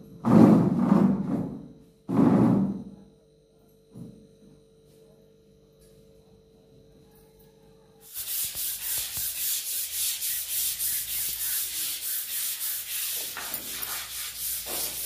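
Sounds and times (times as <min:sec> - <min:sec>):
stiff brush scrubbing tiled floor: 0:08.0 - 0:15.0.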